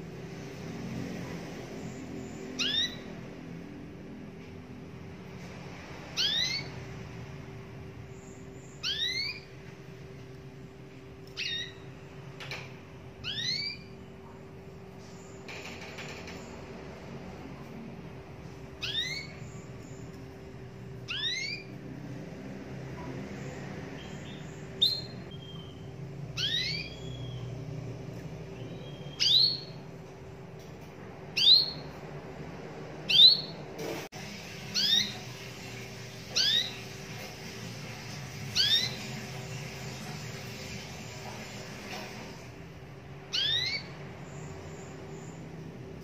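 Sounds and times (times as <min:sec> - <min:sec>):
canary call notes: 0:02.4 - 0:03.2, 0:08.7 - 0:09.5, 0:21.1 - 0:21.7, 0:26.4 - 0:27.6, 0:34.7 - 0:37.0, 0:43.3 - 0:44.0.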